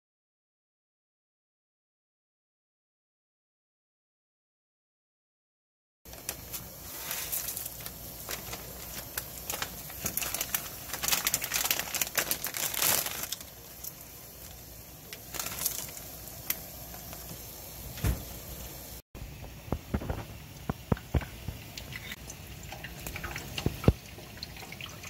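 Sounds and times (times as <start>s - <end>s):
plastic packet crinkling: 6.1s - 17.4s
water boiling in a pan: 6.1s - 25.0s.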